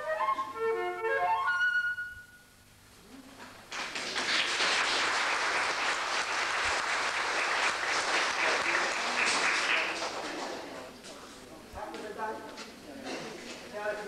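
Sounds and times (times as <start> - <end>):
roomful of people applauding: 3.5 - 11.0.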